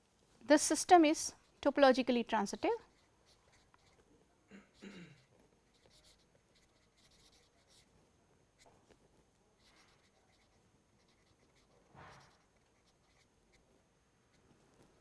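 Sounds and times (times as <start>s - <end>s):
marker pen scratching on paper: 1.2s - 4.1s, 5.2s - 7.9s, 9.6s - 13.7s.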